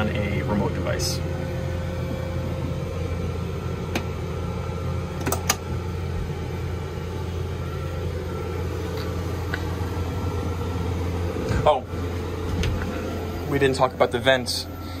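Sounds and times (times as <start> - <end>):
air conditioner humming: 0.0 - 15.0.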